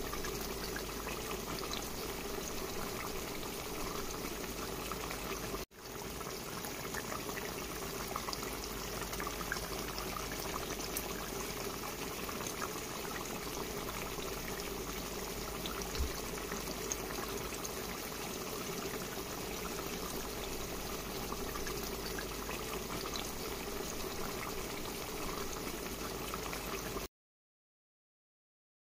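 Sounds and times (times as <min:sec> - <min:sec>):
gravy bubbling in a pot: 0:00.0 - 0:27.1.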